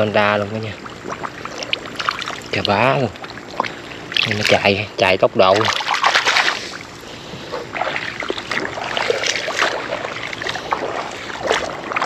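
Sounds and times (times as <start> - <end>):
hand splashing in shallow water: 5.5 - 6.8, 7.5 - 12.0.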